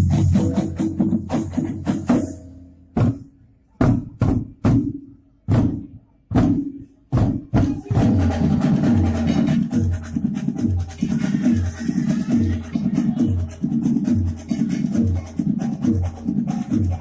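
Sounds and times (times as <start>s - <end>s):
loud accented drum strikes: 0.0s - 9.9s
drum percussion music: 0.0s - 17.0s.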